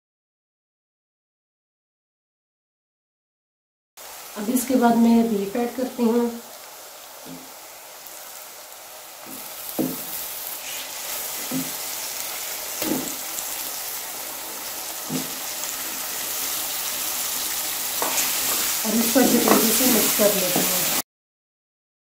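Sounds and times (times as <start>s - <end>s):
meat sizzling in hot oil: 4.0s - 21.0s
wooden spoon knocking in pot: 9.3s - 10.2s, 11.4s - 11.8s, 12.8s - 13.2s, 15.0s - 15.4s, 19.1s - 19.8s.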